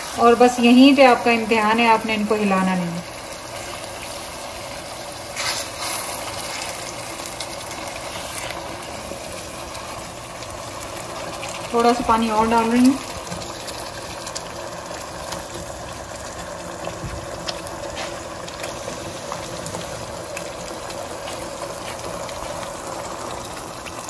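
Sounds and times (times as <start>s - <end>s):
sauce sizzling: 0.0s - 24.0s
water pouring into a pan: 0.0s - 24.0s.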